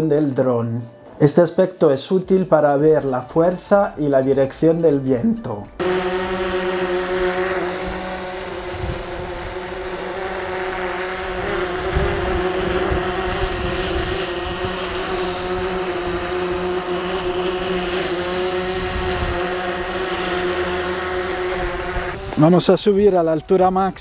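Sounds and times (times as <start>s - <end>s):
drone propellers humming: 5.8s - 22.4s
wind rumbling on microphone: 7.9s - 9.7s, 11.3s - 15.9s, 18.7s - 19.8s.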